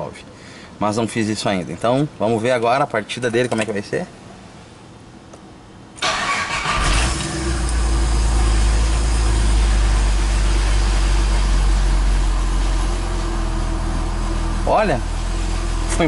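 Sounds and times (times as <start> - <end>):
car engine starting and idling: 6.0 - 16.0.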